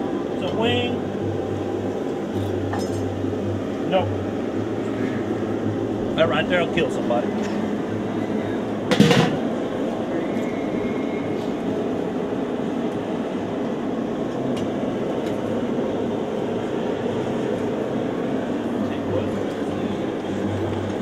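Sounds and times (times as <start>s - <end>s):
steady rushing rumbling noise: 0.0s - 21.0s
sharp knock: 8.9s - 9.5s.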